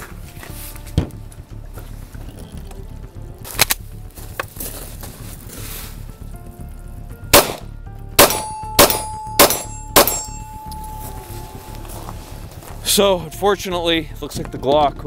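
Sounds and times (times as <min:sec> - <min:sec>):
pistol shots: 0:07.3 - 0:07.6, 0:08.2 - 0:10.4
metallic ringing tone: 0:08.2 - 0:13.5.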